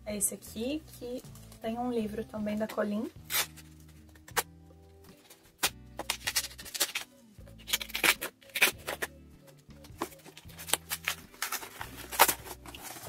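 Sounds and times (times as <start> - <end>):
quiet background music: 0.0 - 13.0
knife cutting cardboard: 10.0 - 13.0.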